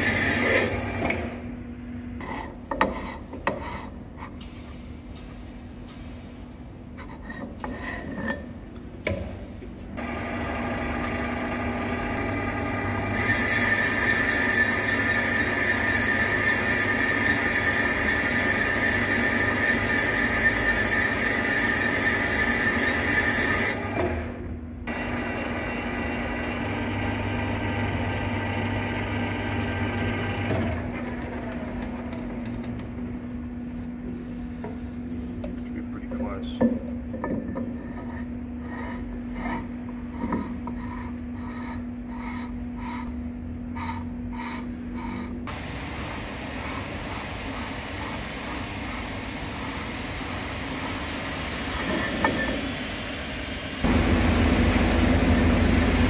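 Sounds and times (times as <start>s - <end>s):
metal lathe whining: 10.0s - 24.2s
high ringing of cutting tool: 13.2s - 23.8s.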